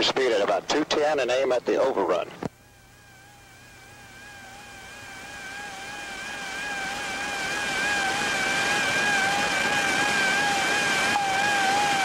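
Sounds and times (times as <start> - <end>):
radio channel hiss: 0.0 - 2.5.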